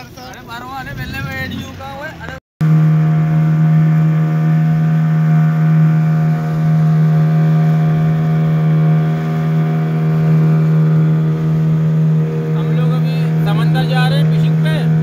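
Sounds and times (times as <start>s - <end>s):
outboard motor running: 0.7s - 15.0s.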